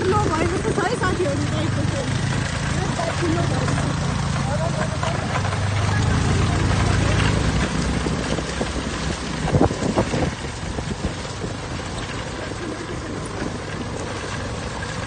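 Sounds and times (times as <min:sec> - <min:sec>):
scooter engine running: 0:00.0 - 0:15.0
wind buffeting microphone: 0:00.0 - 0:15.0.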